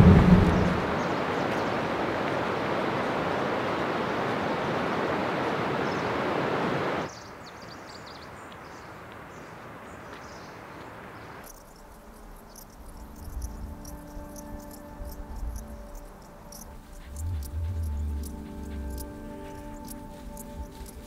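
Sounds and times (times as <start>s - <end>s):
low rumble: 0.0s - 1.2s, 16.8s - 19.9s
loud steady rushing noise: 0.0s - 7.1s, 16.2s - 21.0s
birds chirping: 7.0s - 21.0s
crickets chirring: 11.4s - 21.0s.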